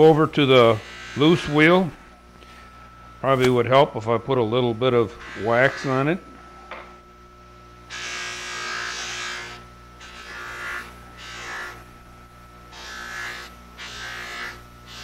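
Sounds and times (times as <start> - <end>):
bench grinder motor hum: 0.4 - 1.8, 4.3 - 6.8, 7.7 - 15.0.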